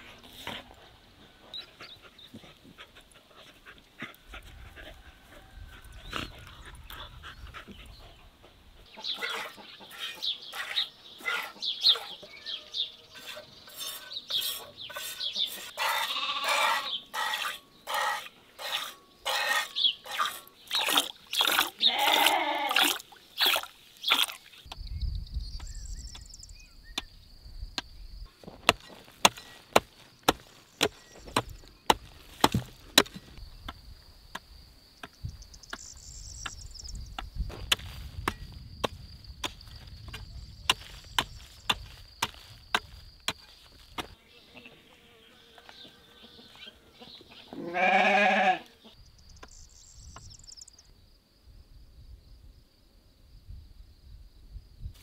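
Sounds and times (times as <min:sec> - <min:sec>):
sheep bleating: 0:15.9 - 0:16.9, 0:21.8 - 0:22.8, 0:47.6 - 0:48.7
milk squirting: 0:20.2 - 0:24.5.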